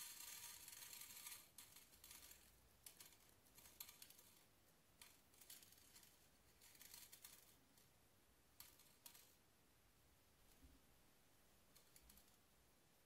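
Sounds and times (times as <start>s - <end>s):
beads scattering in glass dish: 0.0s - 4.4s.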